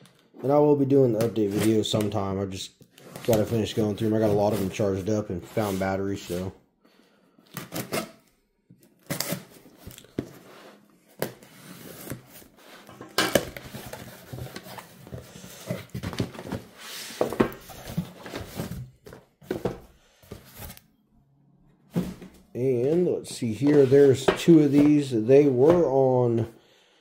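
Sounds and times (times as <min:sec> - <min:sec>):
rustling of contents: 0:08.8 - 0:20.9.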